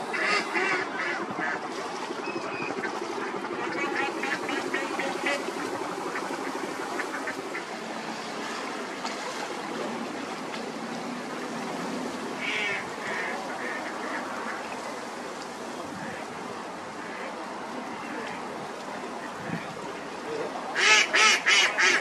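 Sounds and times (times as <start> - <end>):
ducks quacking: 0.0 - 7.7, 12.4 - 14.7, 20.7 - 22.0
steady background noise: 0.0 - 22.0.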